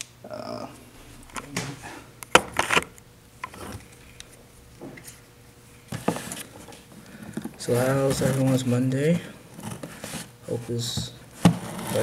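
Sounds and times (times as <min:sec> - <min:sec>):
rustling scrapes: 0:07.6 - 0:08.9, 0:09.6 - 0:12.0.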